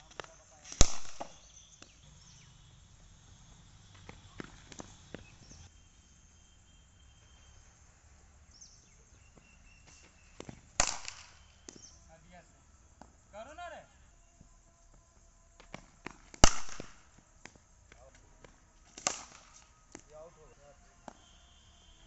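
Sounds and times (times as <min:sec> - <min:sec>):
faint high chirps: 0:00.0 - 0:10.6, 0:11.2 - 0:12.8, 0:19.5 - 0:22.0
cricket bat hitting ball: 0:00.2 - 0:02.0, 0:10.4 - 0:12.0, 0:15.6 - 0:17.6, 0:19.0 - 0:20.0, 0:21.0 - 0:21.3.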